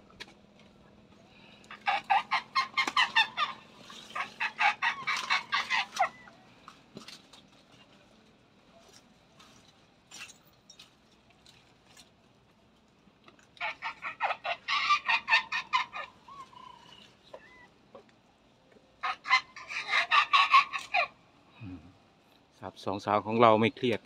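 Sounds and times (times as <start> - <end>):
chicken clucking: 1.7 - 6.4, 19.0 - 21.1.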